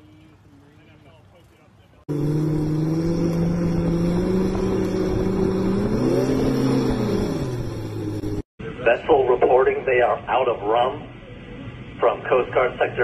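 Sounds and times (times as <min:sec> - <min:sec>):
outboard motor running: 0:02.1 - 0:08.4.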